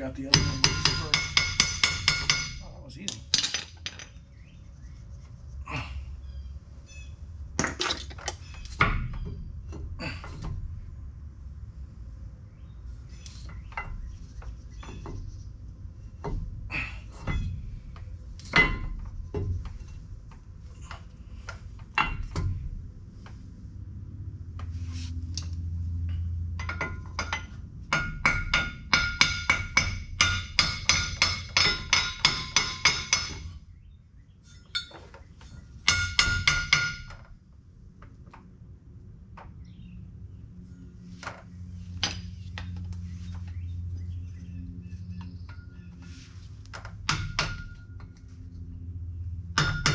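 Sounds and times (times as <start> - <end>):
metal tools knocking and clinking: 0.3 - 4.3, 7.6 - 9.3, 17.2 - 17.6, 18.4 - 20.0, 21.9 - 22.6, 26.0 - 33.6, 34.5 - 37.3.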